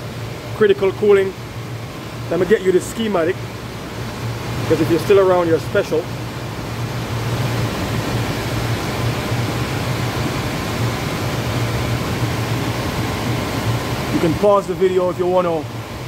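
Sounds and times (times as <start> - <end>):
air conditioner fan rushing: 0.0 - 16.0.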